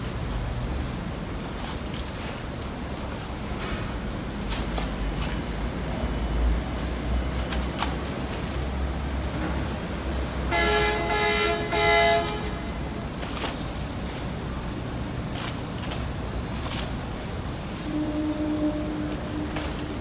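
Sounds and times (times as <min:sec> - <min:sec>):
ferry horn blasts: 0:10.4 - 0:13.0, 0:17.8 - 0:20.0.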